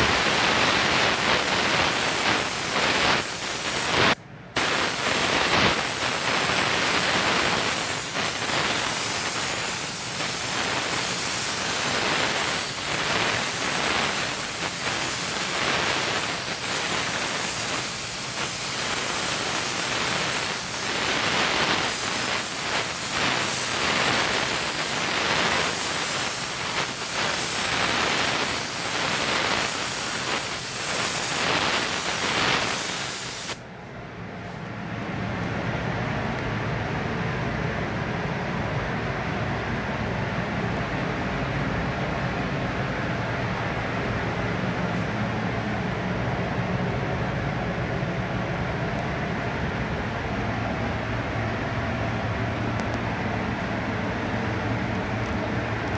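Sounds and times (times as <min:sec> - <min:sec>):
spray gun hissing: 0:00.0 - 0:33.7.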